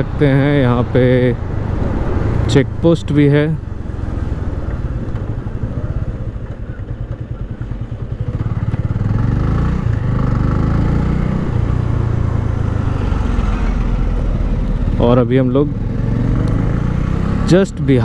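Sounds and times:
motorcycle engine running: 0:01.4 - 0:18.0.

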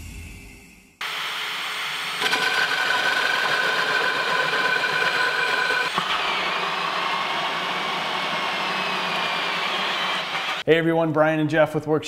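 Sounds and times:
hammer drill whine: 0:01.0 - 0:10.6
hole saw cutting wood: 0:01.0 - 0:10.6
drill click: 0:02.0 - 0:10.6.

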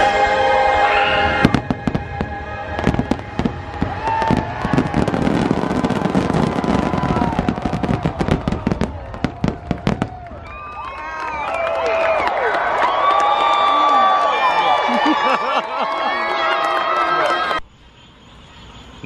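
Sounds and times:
fireworks bursting and crackling: 0:01.2 - 0:11.0.

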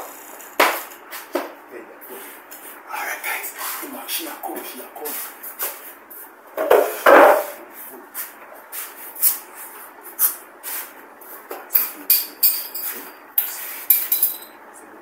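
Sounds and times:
glass bottles clinking: 0:11.8 - 0:14.6.

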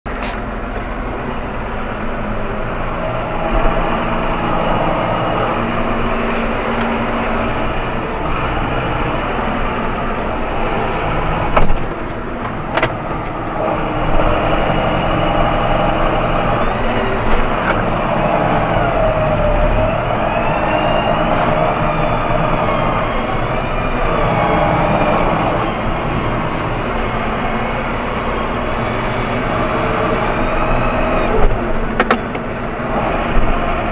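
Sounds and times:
diesel tractor engine running: 0:00.0 - 0:33.9
whine: 0:00.1 - 0:33.9.

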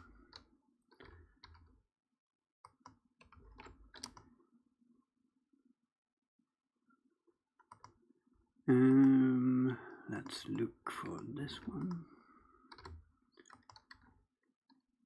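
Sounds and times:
computer mouse and keyboard clicks: 0:00.0 - 0:01.7, 0:02.6 - 0:04.4, 0:07.6 - 0:08.0, 0:10.2 - 0:14.9.

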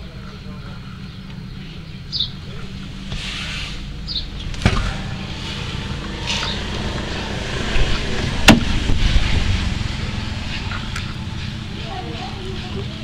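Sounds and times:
car engine idling: 0:00.0 - 0:13.0
sharp knocks: 0:08.4 - 0:09.0.

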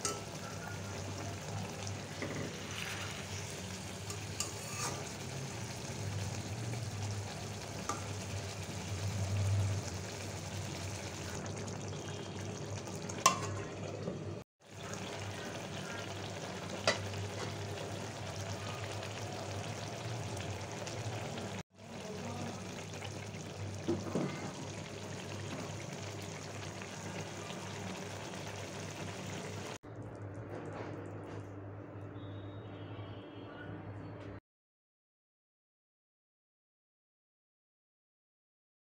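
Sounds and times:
curry bubbling and sizzling: 0:00.0 - 0:31.1.

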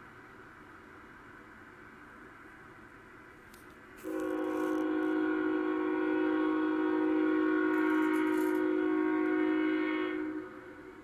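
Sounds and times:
locomotive air horn blast: 0:04.0 - 0:11.0.

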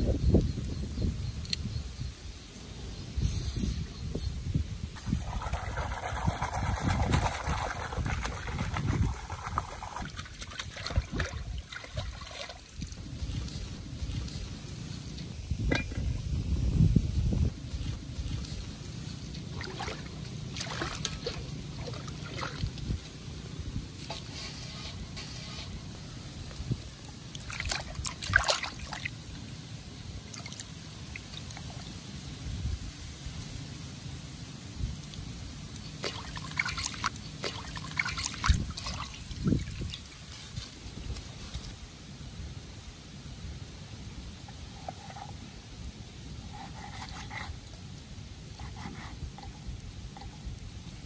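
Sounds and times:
water sloshing and splashing: 0:05.0 - 0:14.6, 0:17.6 - 0:24.4, 0:27.0 - 0:29.3, 0:30.2 - 0:32.0, 0:35.7 - 0:41.8
low steady rumble: 0:12.8 - 0:24.1.

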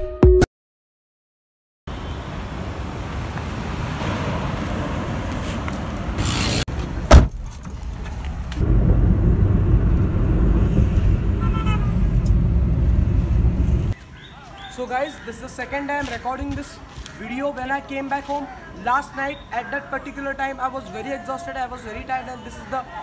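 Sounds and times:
car driving rumble: 0:01.9 - 0:14.0
street noise: 0:01.9 - 0:23.0.

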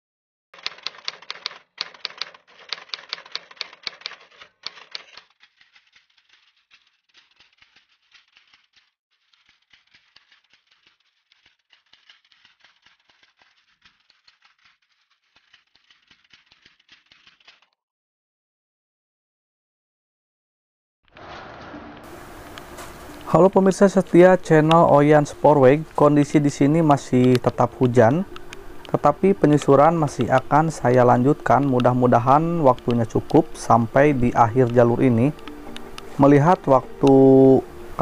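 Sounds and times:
keyboard typing clicks: 0:00.6 - 0:08.7, 0:22.5 - 0:37.3.

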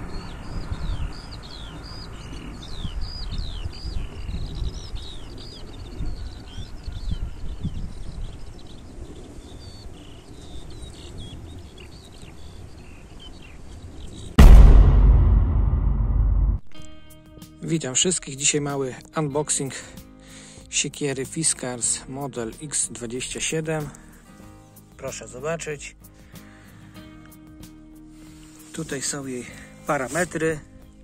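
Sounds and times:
songbirds chirping and trilling: 0:00.0 - 0:14.4, 0:19.2 - 0:31.0
low outdoor rumble: 0:14.4 - 0:16.7
sudden loud sound: 0:14.4 - 0:16.8.

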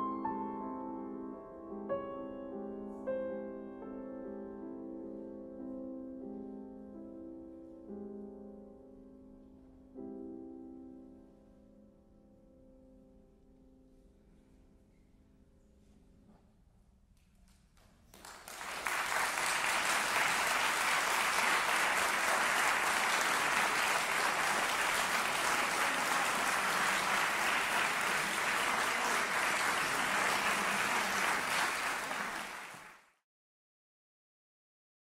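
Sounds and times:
audience applauding: 0:18.0 - 0:33.2.

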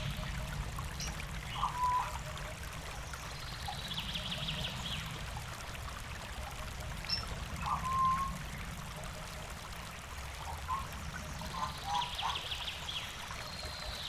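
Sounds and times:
river water flowing: 0:00.0 - 0:14.0
whistled bird call: 0:01.6 - 0:02.2, 0:07.7 - 0:08.3.

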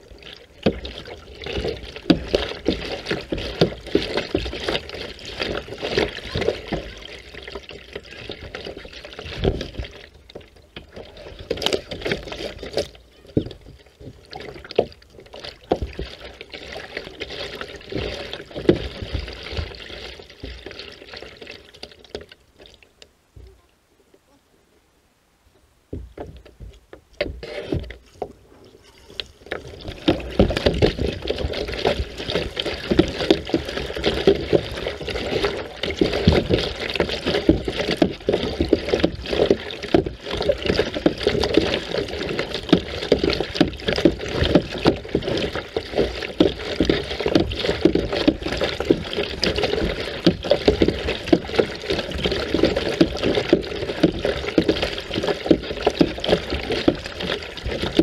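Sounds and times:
water sloshing and splashing: 0:00.0 - 0:24.2, 0:25.8 - 0:58.0.

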